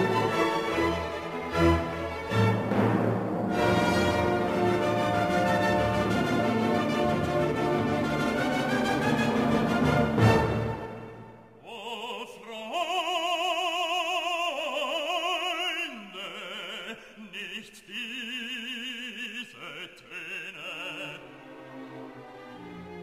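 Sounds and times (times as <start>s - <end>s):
operatic voice singing: 11.6s - 21.6s.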